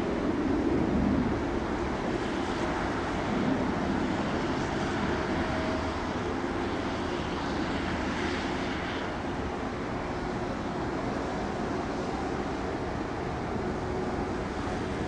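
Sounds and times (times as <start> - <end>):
jet engines at take-off thrust: 0.0 - 15.0.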